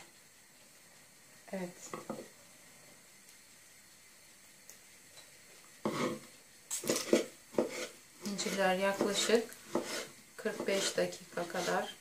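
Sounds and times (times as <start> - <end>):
knife chopping on wooden board: 6.8 - 11.8.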